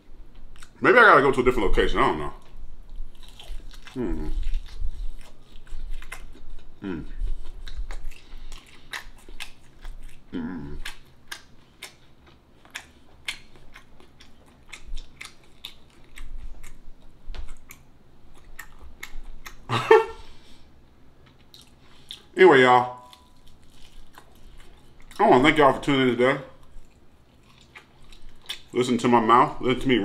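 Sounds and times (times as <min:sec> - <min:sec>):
chewing and mouth smacks: 0:02.4 - 0:19.8, 0:21.2 - 0:22.3, 0:23.0 - 0:25.3, 0:26.6 - 0:28.8.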